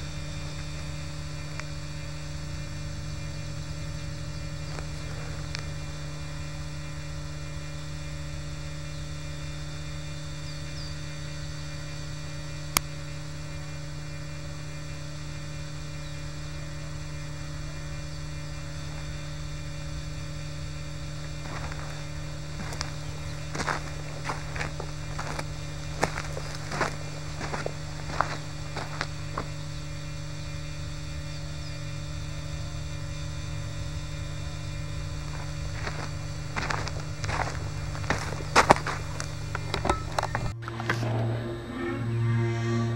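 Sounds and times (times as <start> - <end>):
low electrical hum: 0.0 - 42.9
irregular clicks and crunches: 21.2 - 29.6, 35.2 - 40.6.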